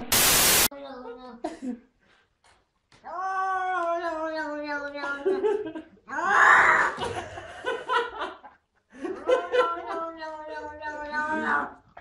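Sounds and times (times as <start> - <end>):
people laughing: 5.0 - 6.0, 7.0 - 10.7
cat yowling: 6.1 - 7.0, 9.8 - 11.7.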